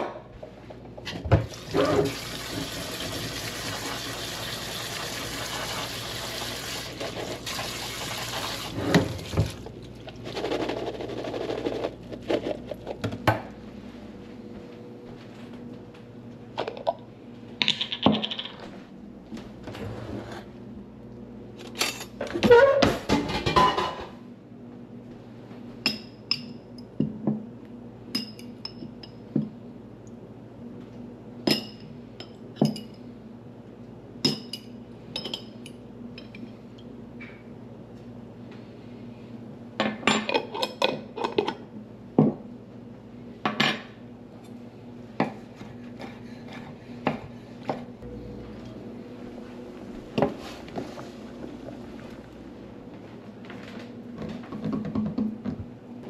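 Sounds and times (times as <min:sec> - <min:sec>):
kitchen tap running: 0:01.3 - 0:09.9
dishes and utensils clattering: 0:21.7 - 0:24.2.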